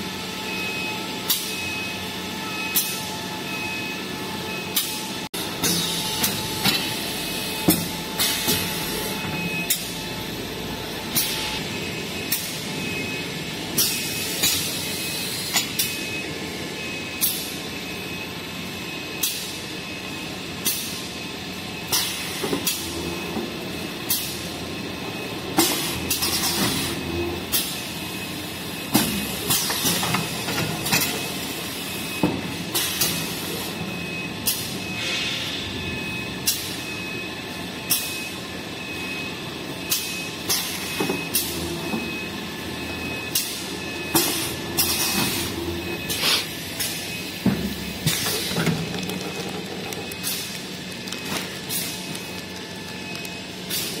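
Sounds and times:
packing machine hum: 0.0s - 16.8s, 39.4s - 54.0s.

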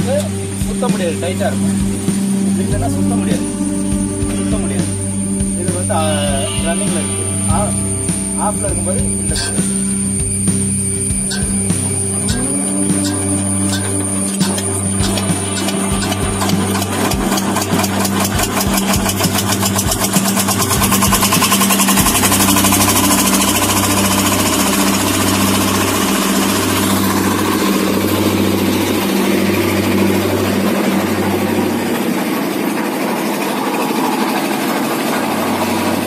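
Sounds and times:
concrete mixer engine rattling: 0.0s - 36.0s.

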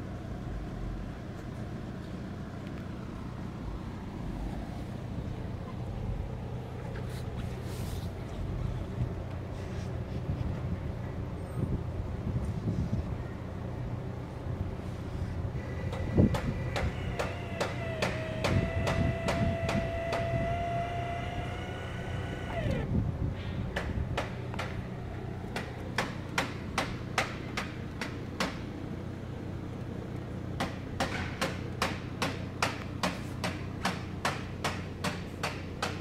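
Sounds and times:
electric motor whine: 15.5s - 23.0s
sharp regular clicks: 15.9s - 22.9s, 23.8s - 24.8s.

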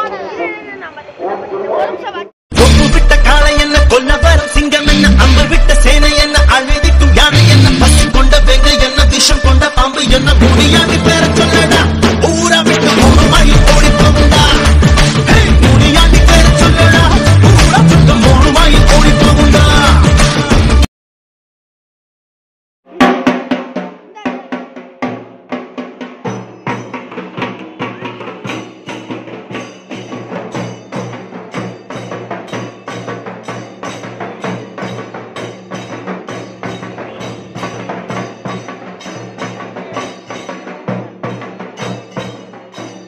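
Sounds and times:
drums beaten in fast rhythm: 2.5s - 20.9s, 22.9s - 43.0s.

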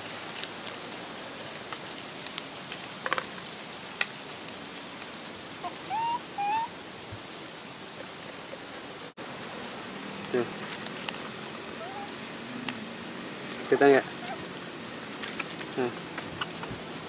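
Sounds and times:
wood fire crackling: 0.0s - 17.0s
bird whistling: 5.9s - 6.7s.

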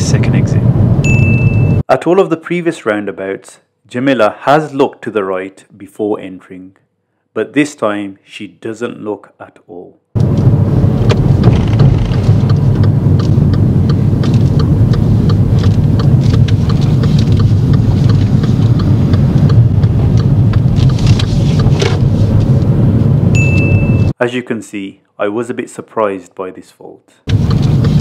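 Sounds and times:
road and engine rumble: 0.0s - 1.8s, 10.2s - 24.2s, 27.3s - 28.0s
short high beep: 1.0s - 1.8s, 23.4s - 24.2s
turn indicator ticking: 10.2s - 22.4s, 27.3s - 28.0s.

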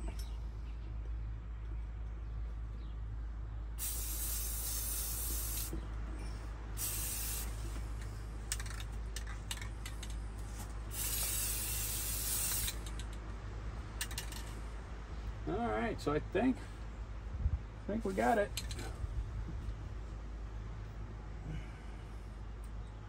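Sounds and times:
aerosol spray can hissing: 3.8s - 5.8s, 6.8s - 7.6s, 10.9s - 12.8s
spray can clicks: 11.0s - 13.0s.

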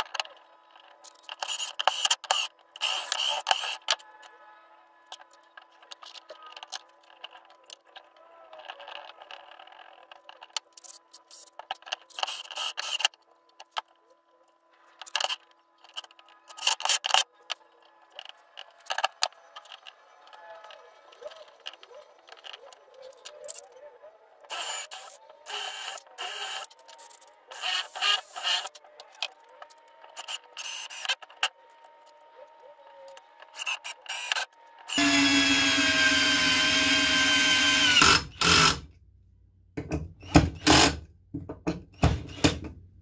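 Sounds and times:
clinks and scrapes of tools: 24.5s - 32.2s
cordless drill driving screws: 27.6s - 28.7s, 34.9s - 38.8s, 40.2s - 41.0s.

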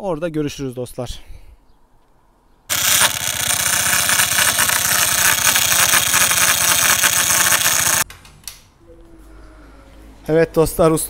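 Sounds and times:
scooter engine rattling and grinding: 2.7s - 8.0s.

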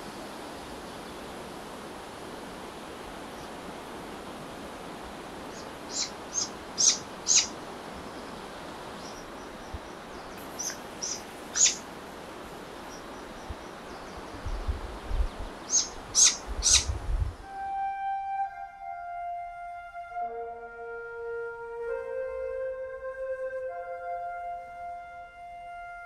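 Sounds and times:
forest background hiss: 0.0s - 26.0s
owl chicks begging calls: 5.5s - 7.6s, 9.0s - 11.8s, 15.6s - 16.9s.

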